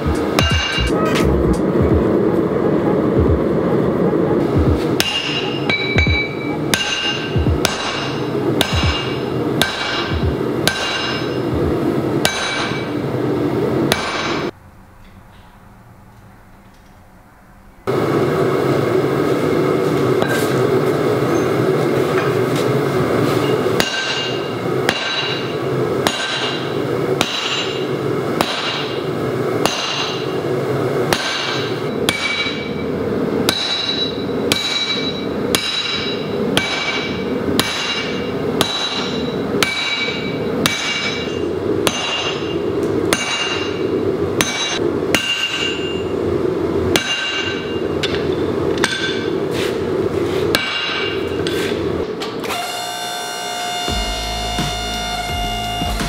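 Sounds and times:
hammer striking steel: 0.0s - 1.4s, 4.4s - 13.0s, 13.9s - 15.5s, 23.2s - 30.4s, 31.1s - 46.1s, 46.9s - 49.8s, 50.5s - 52.4s.

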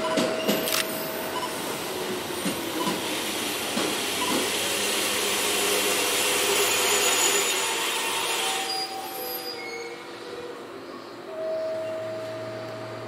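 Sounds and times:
train wheels on rails: 0.0s - 10.6s.

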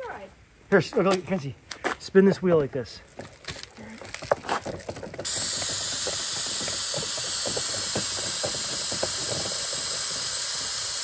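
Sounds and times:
aerosol can spraying hiss: 5.2s - 11.0s.

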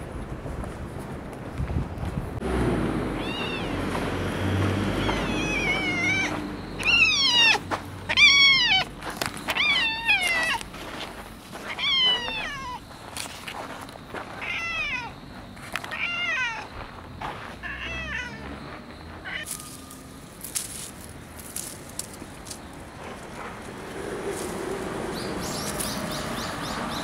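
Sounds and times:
cat meowing: 3.2s - 3.8s, 5.0s - 8.9s, 9.5s - 10.6s, 11.7s - 12.8s, 14.4s - 15.1s, 15.9s - 16.7s, 17.6s - 18.4s.

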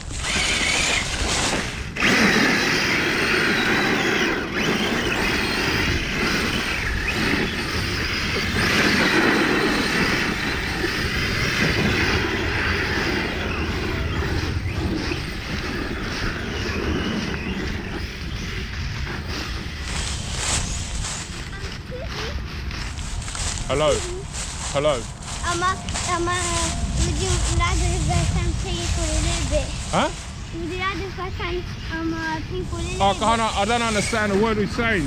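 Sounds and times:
leaves crunching and rustling: 0.0s - 1.9s, 19.2s - 31.4s
toy truck motor whining: 0.0s - 23.5s.

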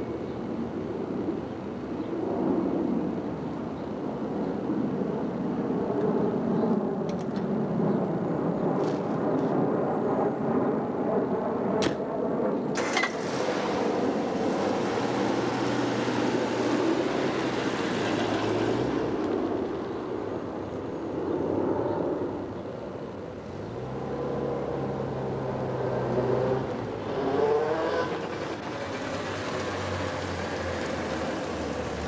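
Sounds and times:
street rumble: 0.0s - 32.0s
passing vehicle hiss: 12.8s - 19.3s.

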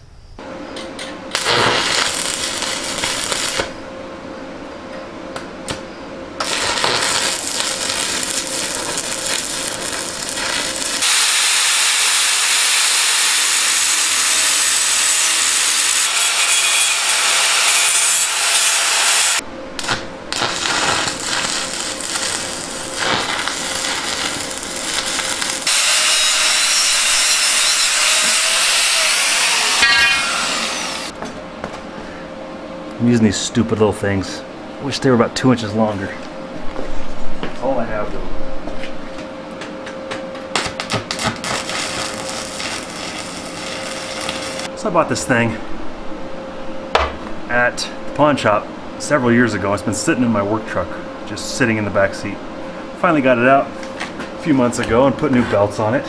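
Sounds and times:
electric arc welding: 1.3s - 3.8s, 6.4s - 31.2s, 40.6s - 44.7s
angle grinder grinding steel: 6.4s - 19.4s, 20.4s - 31.1s, 41.4s - 44.7s
power tool whine winding down: 6.4s - 19.4s, 20.4s - 31.1s, 41.5s - 44.7s.

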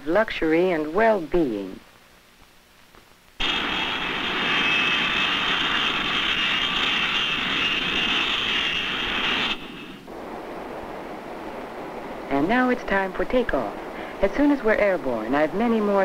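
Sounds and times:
jet engine rushing noise: 3.4s - 15.6s
jet engine whine: 3.4s - 16.0s.

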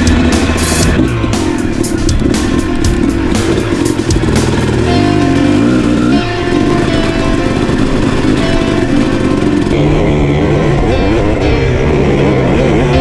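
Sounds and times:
background music with held notes: 0.0s - 13.0s
dirt bike engine revving: 0.0s - 13.0s.

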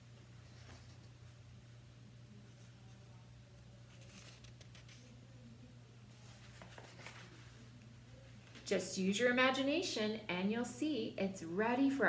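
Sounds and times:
low room hum: 0.0s - 12.0s
paper rustling: 0.4s - 1.4s, 3.9s - 5.2s, 6.1s - 8.6s.

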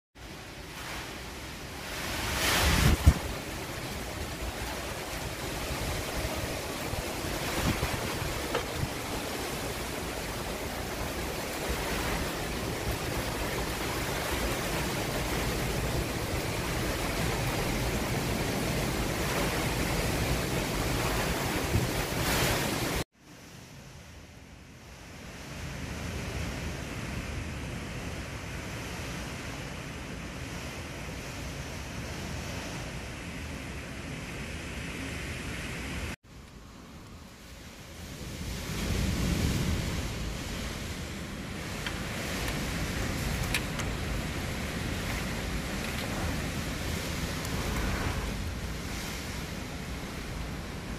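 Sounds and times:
gusts buffeting microphone: 0.2s - 23.1s, 24.9s - 50.9s
heavy rain: 0.2s - 23.1s, 37.2s - 50.9s
strong wind: 0.2s - 50.9s.

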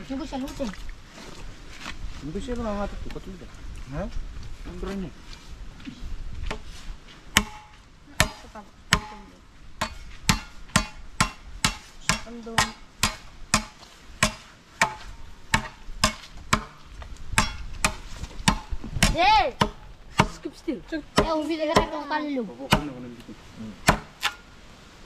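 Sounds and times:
machete chopping bamboo: 7.3s - 9.2s, 9.8s - 20.4s, 22.7s - 23.0s, 23.8s - 24.4s.

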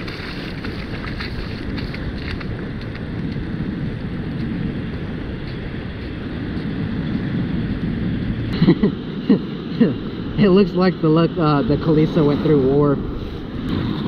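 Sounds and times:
surf running up sand: 0.0s - 14.0s
wind buffeting microphone: 0.0s - 14.0s.

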